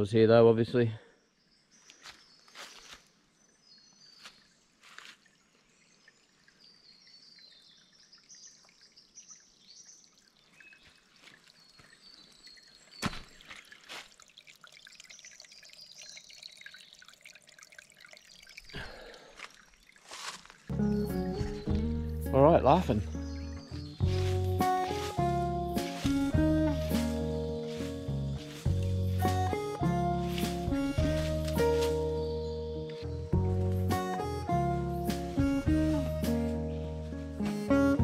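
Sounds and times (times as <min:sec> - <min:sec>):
water dripping into a pool: 0:03.8 - 0:20.7.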